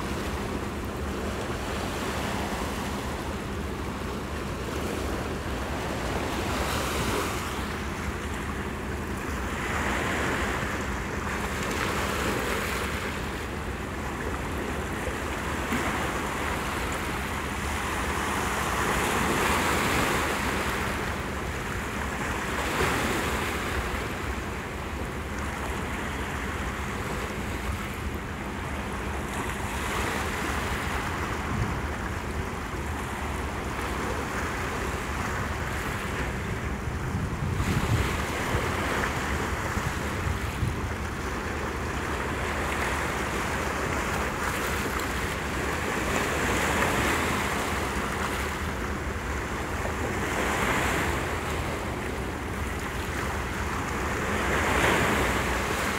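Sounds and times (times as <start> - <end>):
sea waves breaking over rocks: 0.0 - 55.9
wind rumbling on microphone: 35.8 - 41.2.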